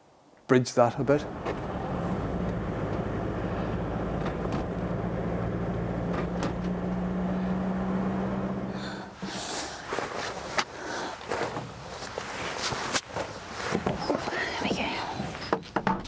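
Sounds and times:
car engine and road noise: 1.0 - 15.9
scuffing sounds: 9.5 - 14.2.

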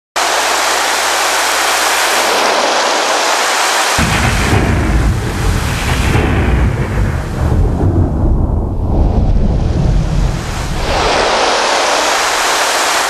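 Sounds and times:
synthesizer water-like hiss: 0.2 - 8.1, 8.8 - 13.0
synthesizer thunder-like rumble: 4.0 - 11.6.

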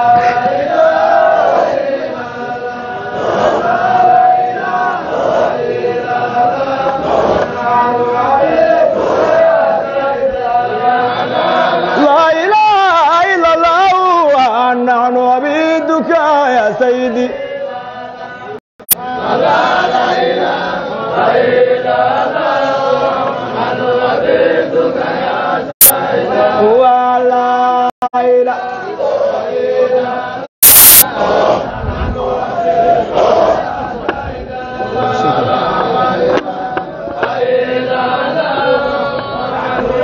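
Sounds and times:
men chanting together: 0.0 - 40.0
short loud burst: 30.6 - 31.5.

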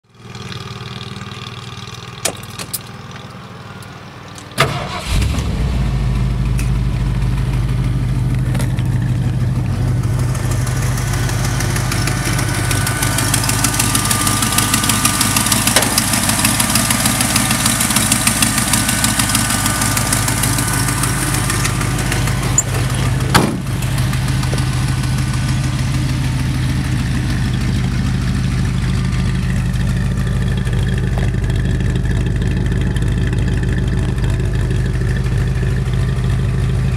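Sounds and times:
engine starting and idling: 4.4 - 36.8
sharp knock: 23.3 - 23.6.

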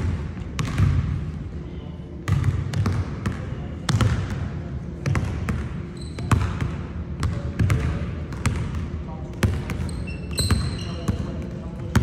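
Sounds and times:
basketball bouncing on hardwood floor: 0.6 - 1.0.

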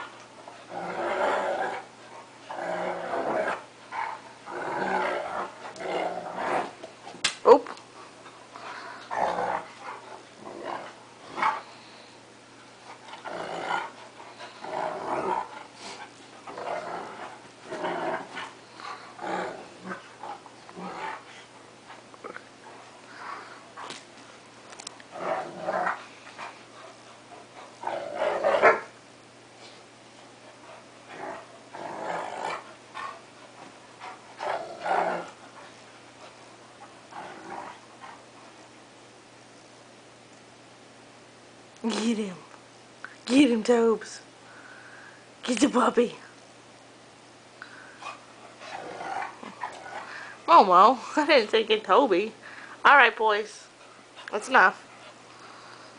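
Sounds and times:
dogs growling playfully: 0.0 - 29.0, 29.6 - 38.8, 47.6 - 51.2.

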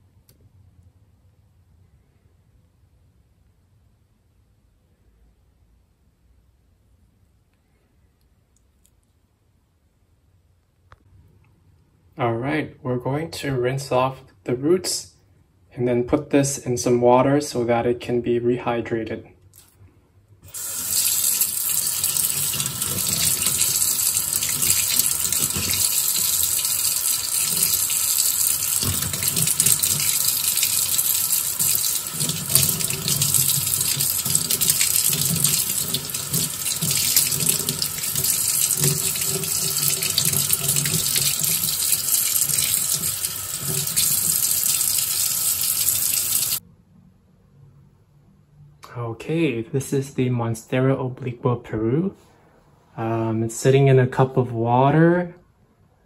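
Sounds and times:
tap water running into a sink: 20.5 - 46.6.

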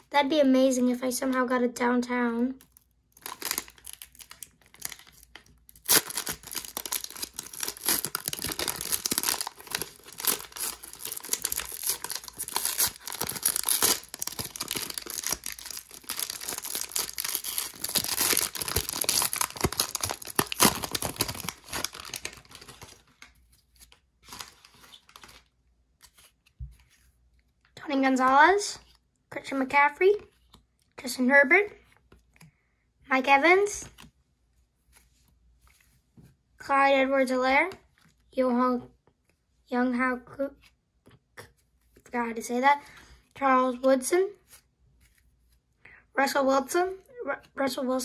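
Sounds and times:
plastic wrapper tearing and crinkling: 2.6 - 26.2.

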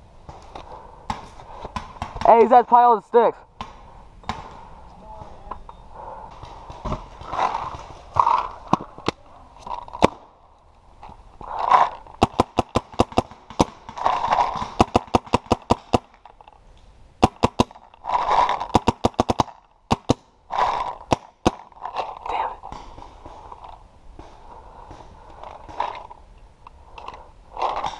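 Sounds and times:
paintball marker rapid shots: 12.2 - 16.1, 17.2 - 21.7.

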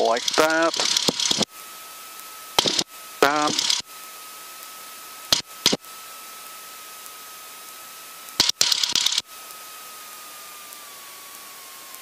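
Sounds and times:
headset intercom hiss: 0.0 - 1.5, 2.6 - 3.8
faint thin whine: 0.0 - 12.0
sharp bursts of noise: 0.0 - 12.0.

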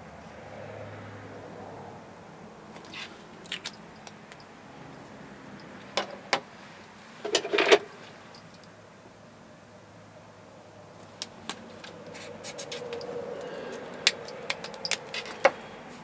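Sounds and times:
marker caps clicking: 14.0 - 15.5
markers clattering on wooden desk: 14.1 - 15.6.

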